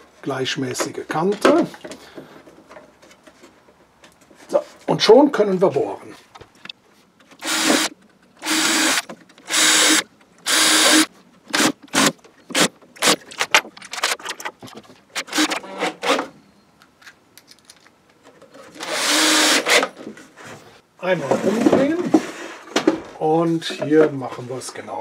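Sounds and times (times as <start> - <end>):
cordless drill boring wood: 7.4 - 12.1, 18.8 - 19.8.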